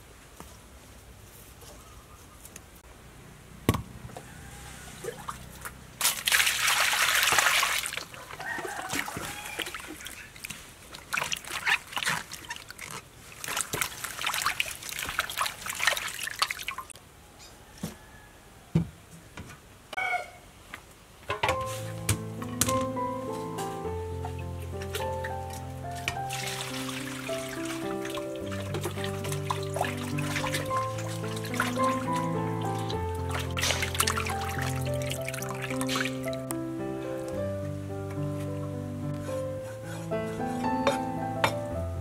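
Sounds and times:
rush of water: 0:04.6 - 0:16.9, 0:25.9 - 0:36.5
water splashing in a bowl: 0:05.0 - 0:17.0, 0:26.0 - 0:36.5.

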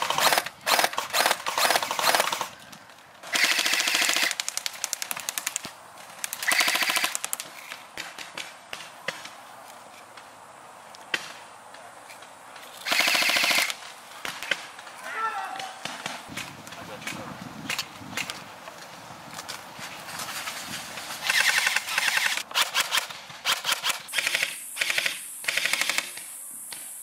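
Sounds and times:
airsoft rifles firing full-auto: 0:00.0 - 0:02.6, 0:03.2 - 0:07.4, 0:12.8 - 0:14.7, 0:21.2 - 0:26.3.

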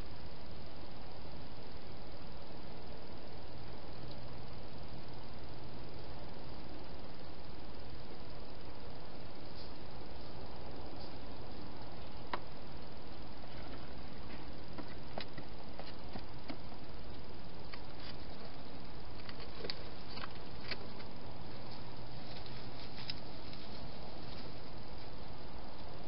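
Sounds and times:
steady hiss: 0:00.0 - 0:26.0.

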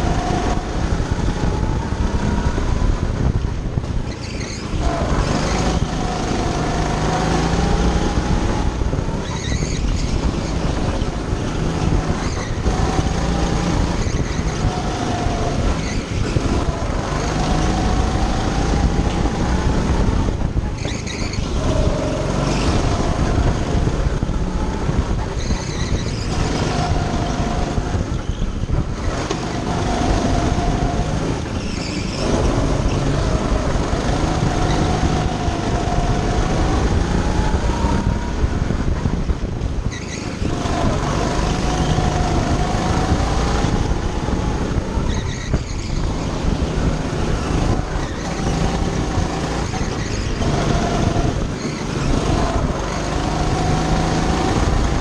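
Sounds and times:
go-kart engine running: 0:00.0 - 0:55.0
tyre squeals: 0:04.1 - 0:05.9, 0:09.2 - 0:10.8, 0:20.7 - 0:23.5, 0:25.2 - 0:33.2, 0:39.8 - 0:43.2, 0:45.0 - 0:54.4.

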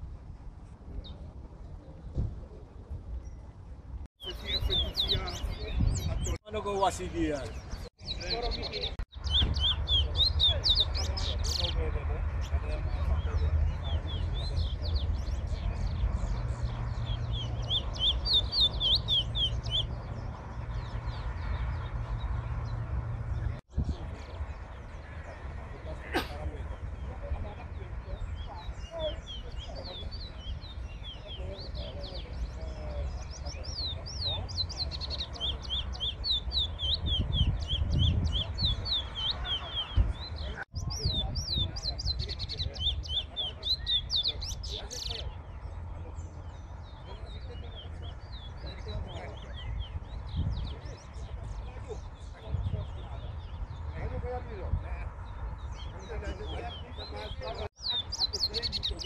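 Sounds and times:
finch singing whistled notes: 0:07.5 - 0:11.8, 0:13.1 - 0:21.2.

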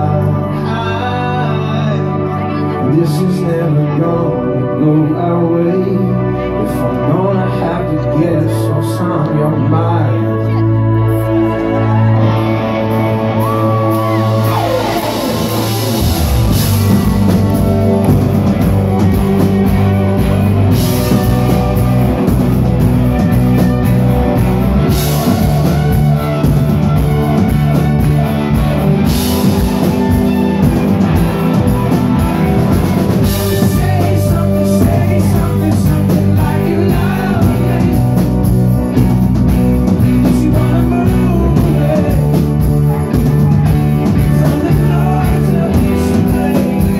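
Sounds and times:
live rock band playing: 0:00.0 - 0:46.9.

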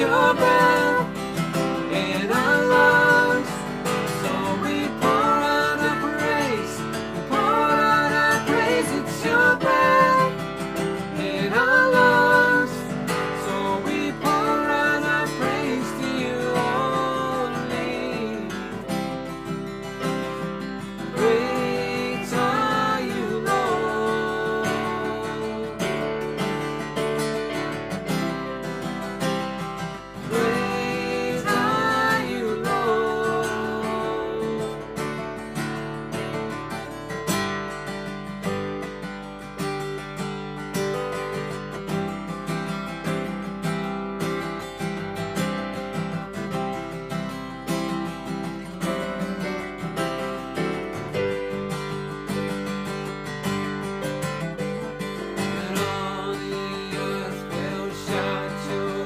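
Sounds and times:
man and woman singing: 0:00.0 - 0:19.0, 0:20.9 - 0:26.2, 0:30.2 - 0:35.2, 0:55.4 - 0:59.0
acoustic guitar: 0:00.0 - 0:59.0
keyboard: 0:00.0 - 0:59.0.

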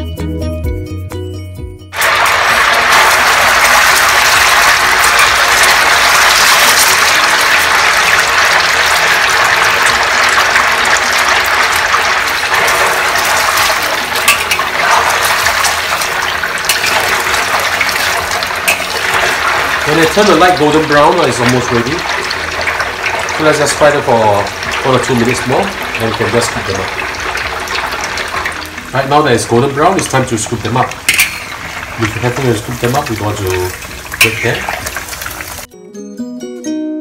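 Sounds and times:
oil sizzling in a wok: 0:01.9 - 0:35.7.

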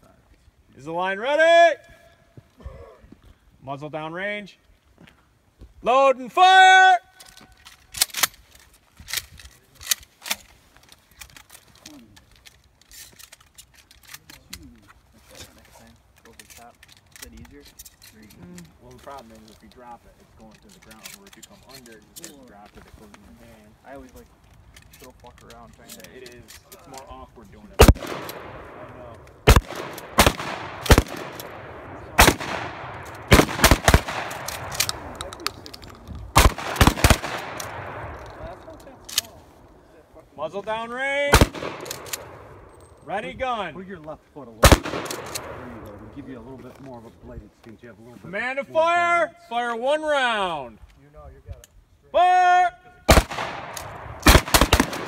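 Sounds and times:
shotgun shots: 0:27.8 - 0:35.4, 0:36.3 - 0:38.6, 0:41.3 - 0:42.7, 0:44.6 - 0:46.1, 0:53.1 - 0:55.0
faint sharp cracks: 0:27.8 - 0:39.8, 0:41.3 - 0:42.9.

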